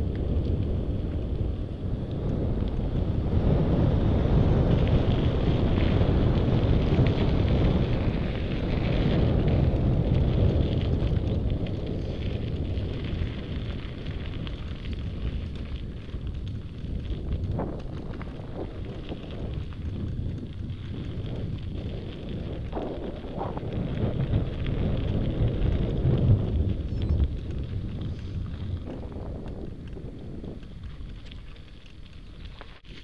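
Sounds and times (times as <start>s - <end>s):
tyres rolling over gravel: 0.0s - 33.0s
wind buffeting microphone: 0.0s - 33.0s
faint crunching ticks: 9.6s - 33.0s.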